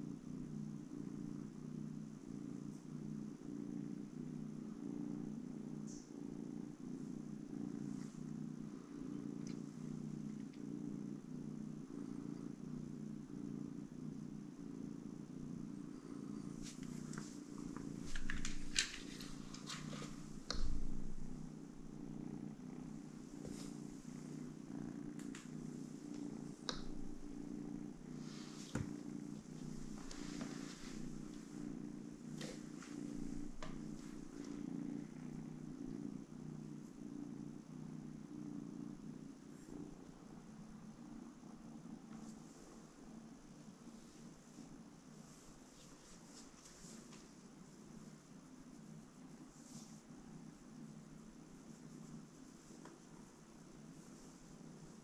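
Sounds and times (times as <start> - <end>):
cat purring: 0.0 - 55.0
clicks and rustles: 16.7 - 21.2.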